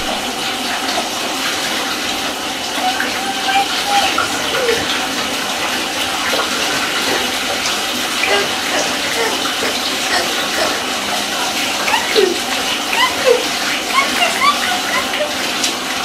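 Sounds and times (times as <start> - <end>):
water running into bathtub: 0.0 - 16.0
faint small voice sounds: 2.8 - 5.0, 8.2 - 15.8.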